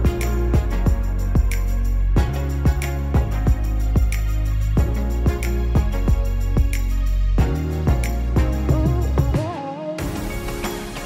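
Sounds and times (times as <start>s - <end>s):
drum beat: 0.0s - 1.6s, 2.2s - 4.2s, 7.4s - 11.0s
sustained bass notes: 0.0s - 9.4s.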